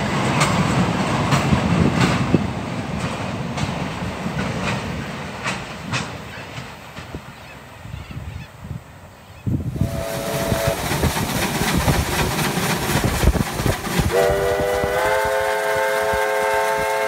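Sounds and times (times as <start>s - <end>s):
steam locomotive clattering and hissing: 0.0s - 8.8s, 9.4s - 17.0s
steam whistle blasts: 9.7s - 11.0s, 14.1s - 17.0s.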